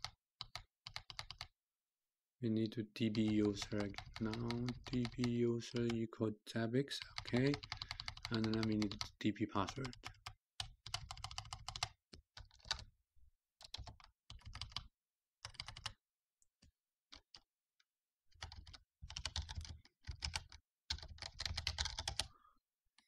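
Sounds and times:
computer keyboard typing: 0:00.0 - 0:01.5, 0:03.1 - 0:06.0, 0:07.0 - 0:12.9, 0:13.6 - 0:16.0, 0:17.1 - 0:17.4, 0:18.3 - 0:22.3.

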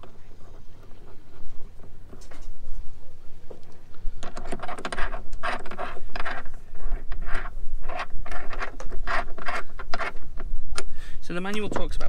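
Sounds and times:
plastic and metal parts scraping: 0:04.2 - 0:10.9, 0:11.5 - 0:12.0.

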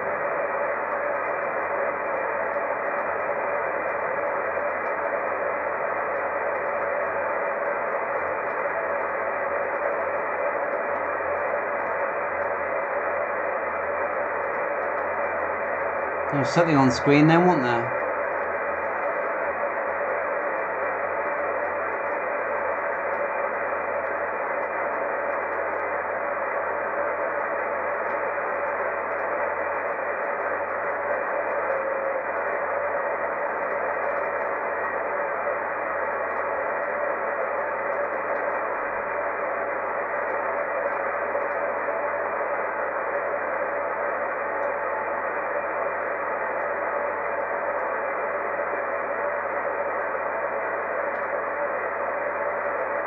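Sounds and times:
radio static hiss: 0:00.0 - 0:53.0.

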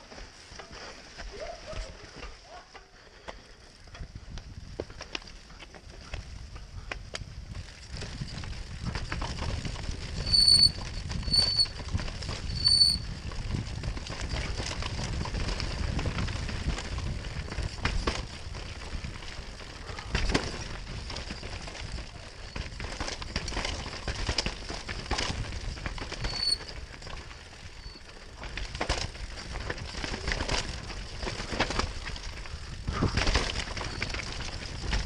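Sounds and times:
bike rattling over dirt trail: 0:00.0 - 0:35.0
brakes squealing: 0:10.1 - 0:13.2, 0:25.3 - 0:28.6.

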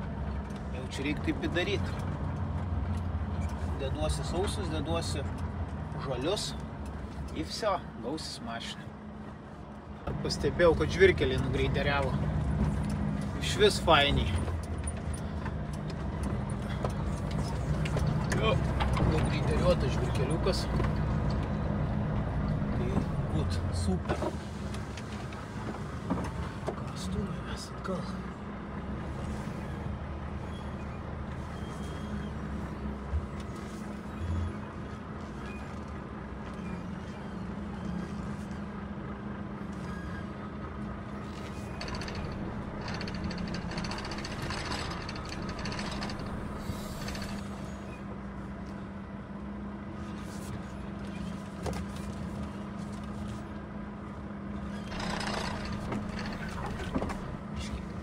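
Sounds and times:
diesel truck engine running: 0:00.0 - 0:58.0
diesel truck engine reversing: 0:29.1 - 0:33.0, 0:39.8 - 0:48.2.

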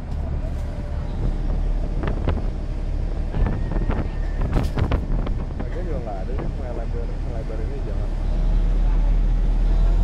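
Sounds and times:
wind buffeting microphone: 0:00.0 - 0:07.3
boat engine rumbling: 0:00.0 - 0:10.0.

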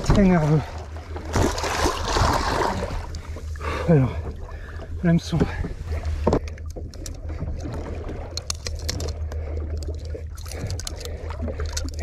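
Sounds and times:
boat engine idling: 0:02.8 - 0:12.0
clicks and knocks of fish on deck: 0:06.2 - 0:12.0.

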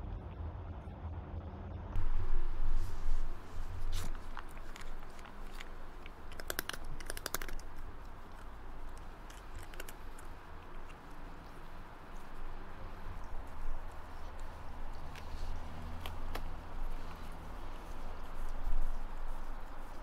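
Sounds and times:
cat crunching dry treats: 0:03.9 - 0:13.6.

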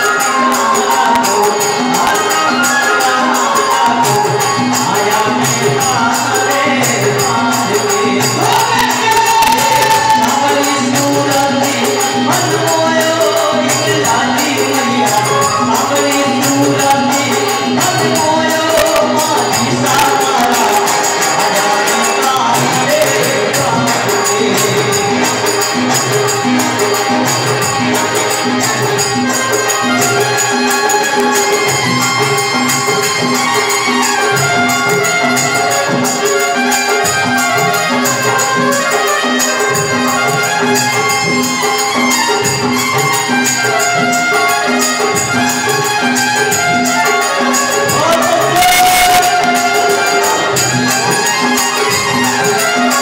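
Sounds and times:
drum beat: 0:00.0 - 0:53.0
harmonium: 0:00.0 - 0:53.0
jingling hand percussion: 0:00.0 - 0:53.0
men singing: 0:00.0 - 0:53.0
electronic keyboard: 0:45.1 - 0:53.0.

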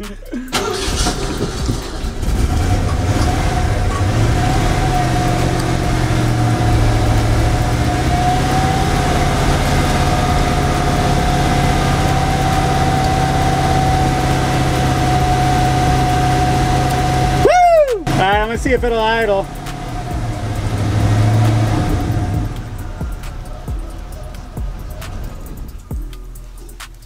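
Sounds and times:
steady high whine: 0:00.0 - 0:27.0
truck engine running: 0:00.0 - 0:27.0.

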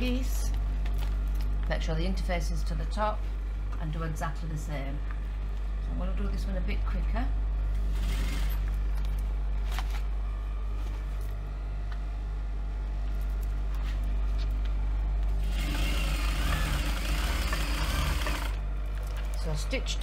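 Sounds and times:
sewing machine motor humming: 0:07.7 - 0:08.9, 0:15.2 - 0:19.3.

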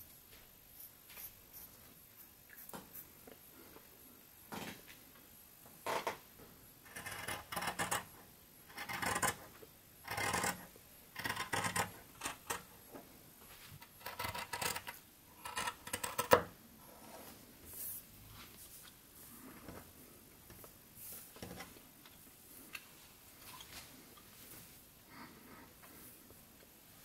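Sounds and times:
scissors cutting fabric: 0:13.9 - 0:14.9.

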